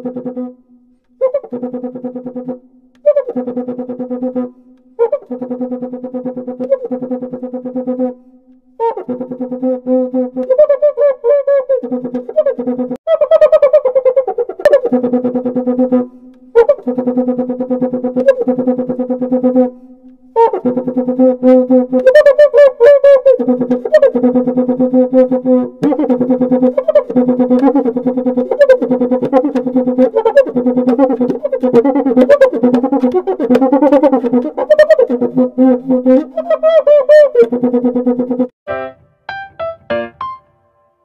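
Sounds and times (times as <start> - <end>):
synthesizer tune of fast repeated notes: 38.7 - 41.0.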